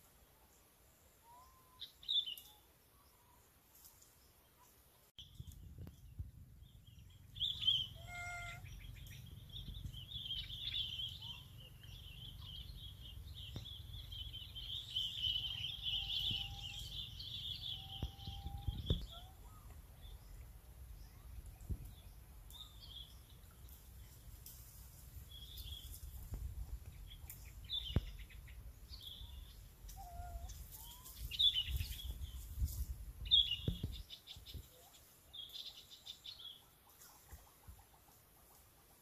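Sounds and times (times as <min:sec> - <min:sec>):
birds chirping: 0:04.6 - 0:37.7
short bird call: 0:07.6 - 0:08.8.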